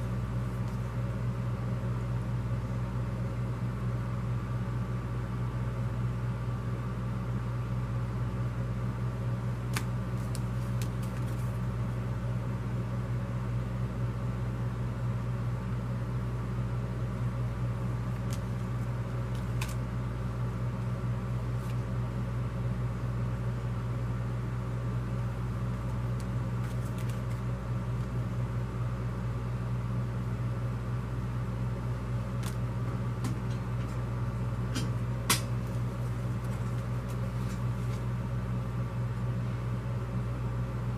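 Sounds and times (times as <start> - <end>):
steady low hum: 0.0 - 40.9
paper cards tapping on table: 9.7 - 11.5.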